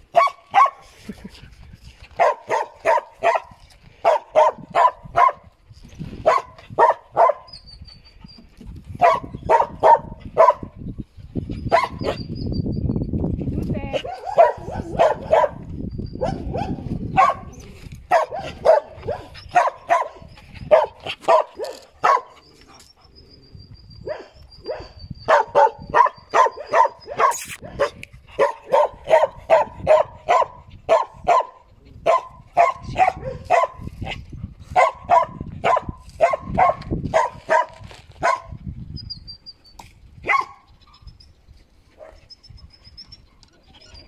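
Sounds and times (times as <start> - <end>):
dog barking: 0.1 - 0.8, 2.2 - 5.4, 6.2 - 7.5, 9.0 - 10.7, 11.7 - 12.2, 14.0 - 17.5, 18.1 - 22.4, 24.0 - 33.9, 34.8 - 38.6, 40.2 - 40.7.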